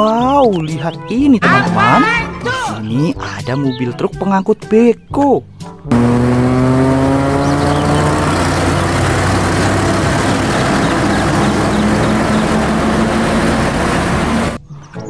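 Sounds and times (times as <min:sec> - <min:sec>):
road and traffic noise: 0:05.9 - 0:14.6
truck diesel engine running: 0:05.9 - 0:14.6.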